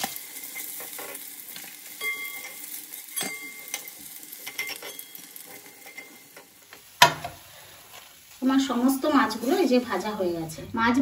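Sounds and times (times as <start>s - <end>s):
metal spatula scraping a pan: 0.0s - 6.6s
fish sizzling in hot oil: 0.0s - 10.6s.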